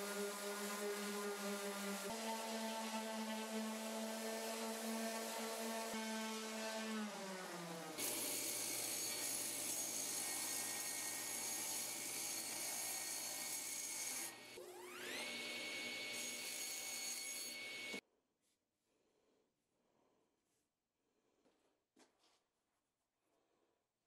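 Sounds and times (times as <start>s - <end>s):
table saw whining: 0.0s - 18.0s.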